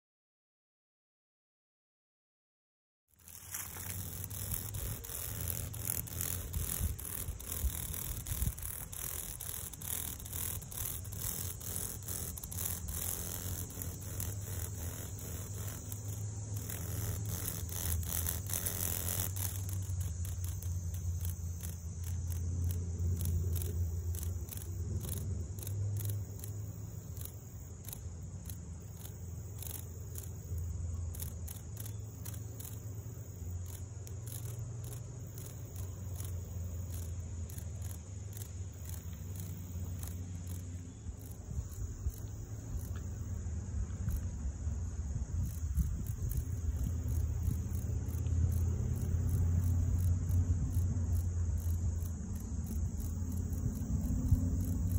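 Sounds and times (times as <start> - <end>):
dry rasping clicks: 3.2 - 44.4
high-pitched insect chorus: 3.2 - 54.9.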